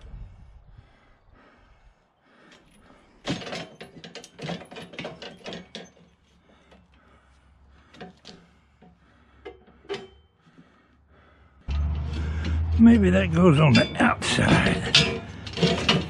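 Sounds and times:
steel frame clanking and rattling: 0:02.7 - 0:06.7, 0:07.8 - 0:10.6, 0:11.7 - 0:16.0.

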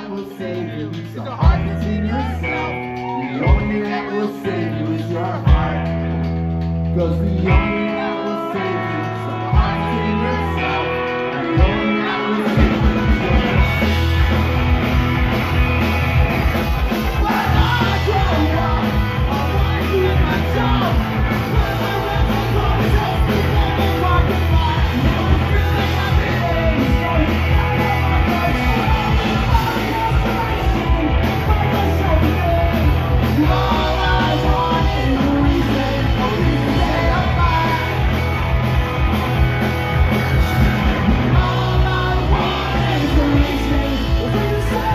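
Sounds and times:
vocals: 0:00.0 - 0:14.7, 0:16.8 - 0:39.2, 0:40.0 - 0:44.9
punk rock band playing live: 0:00.0 - 0:44.9.

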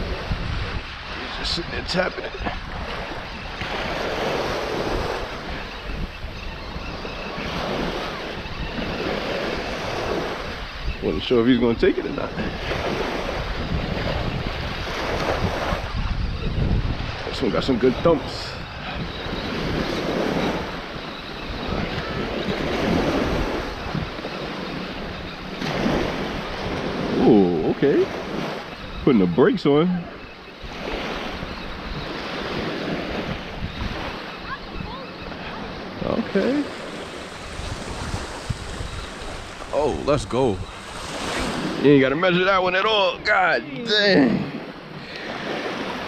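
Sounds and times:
waves washing on shore: 0:00.0 - 0:46.0
wind rumbling on microphone: 0:00.0 - 0:46.0.

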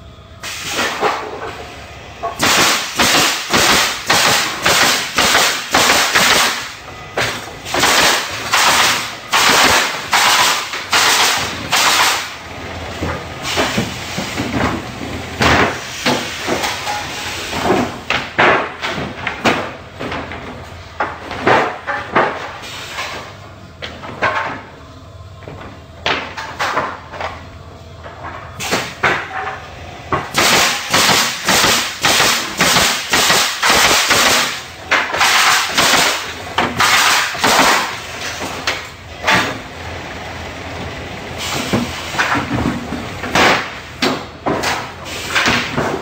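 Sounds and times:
pneumatic nailers firing: 0:00.4 - 0:01.4, 0:02.2 - 0:12.4, 0:13.1 - 0:14.8, 0:15.4 - 0:20.3, 0:28.6 - 0:29.5, 0:30.1 - 0:39.7, 0:41.4 - 0:46.0
boards knocking and clattering: 0:17.6 - 0:22.5, 0:41.6 - 0:46.0.

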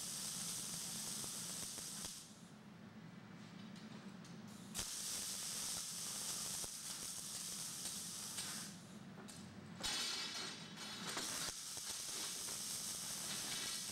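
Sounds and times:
welding arc crackling hiss: 0:00.0 - 0:02.4, 0:04.8 - 0:08.8, 0:09.8 - 0:13.9.

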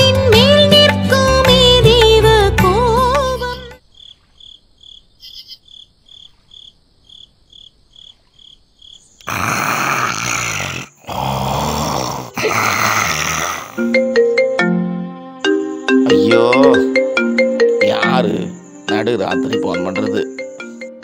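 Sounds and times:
crickets chirping: 0:02.0 - 0:21.0
person snoring: 0:09.2 - 0:14.0.

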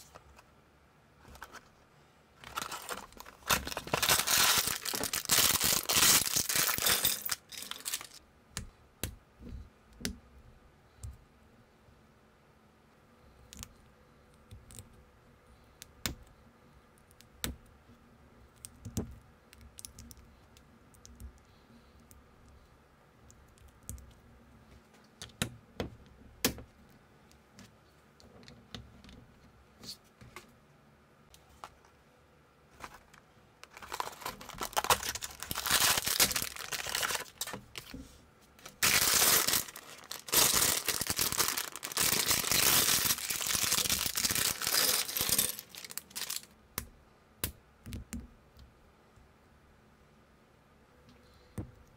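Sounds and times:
plastic bag crinkling: 0:02.4 - 0:08.2, 0:32.8 - 0:37.9, 0:38.6 - 0:46.5.

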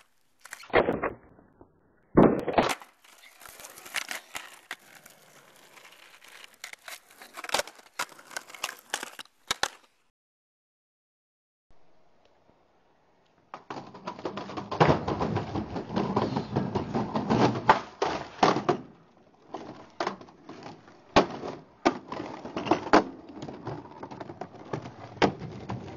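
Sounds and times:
skateboard wheels rolling on wood: 0:02.5 - 0:09.9, 0:13.4 - 0:25.9.

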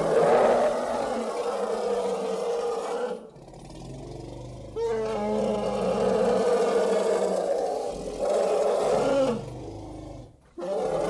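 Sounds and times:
elephant low rumble: 0:03.3 - 0:10.4.

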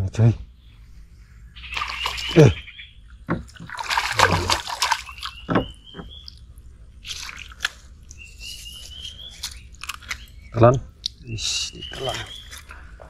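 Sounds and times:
fish thrashing and splashing: 0:01.6 - 0:02.6, 0:03.4 - 0:05.8, 0:07.0 - 0:08.1
water sloshing: 0:01.6 - 0:08.2.

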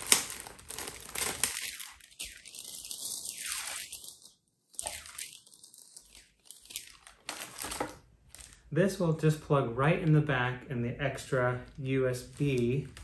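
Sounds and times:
plastic bag crinkling: 0:00.0 - 0:08.7, 0:11.3 - 0:13.0.

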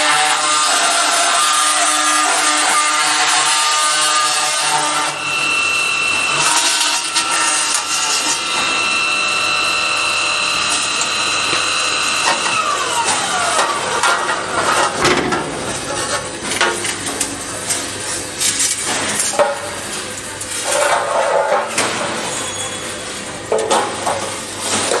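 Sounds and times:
circular saw whining: 0:00.0 - 0:15.0.

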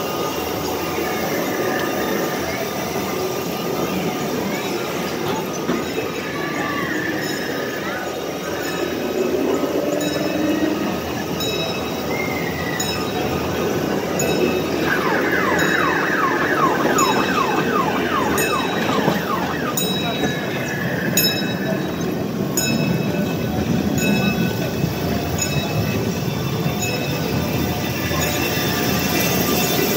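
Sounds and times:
ride train rumbling: 0:00.0 - 0:29.9
wheels clacking on rail joints: 0:03.2 - 0:26.1
falling siren-like tones: 0:05.1 - 0:22.3.

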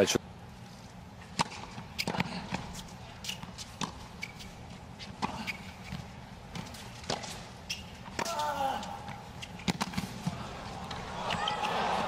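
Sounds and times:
tennis ball bouncing and struck: 0:01.3 - 0:04.4, 0:09.6 - 0:10.3.

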